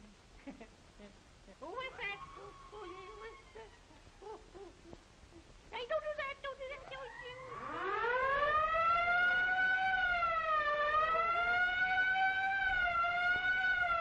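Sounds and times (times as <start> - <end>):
siren-like wail: 6.8 - 14.0.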